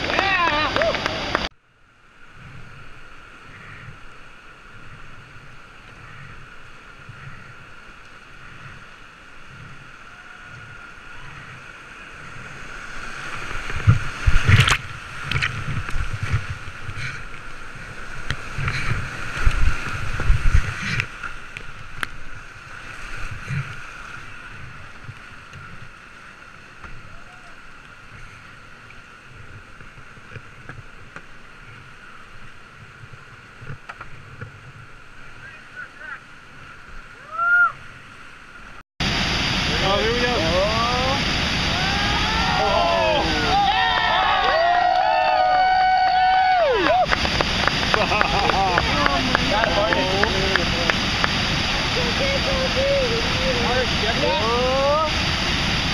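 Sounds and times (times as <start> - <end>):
rushing whitewater: 0.0 - 55.9
water thumping on hull: 13.2 - 22.2.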